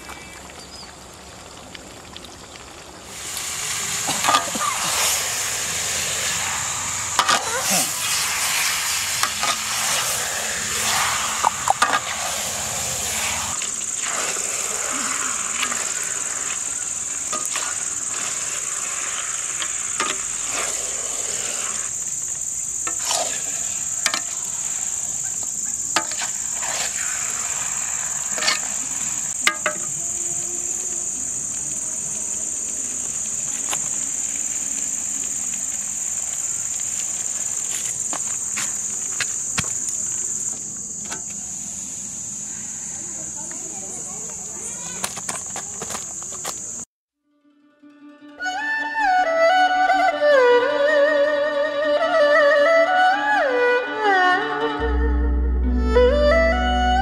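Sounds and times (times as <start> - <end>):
crickets and insects chirring: 0.0 - 46.9
food sizzling: 1.0 - 40.8.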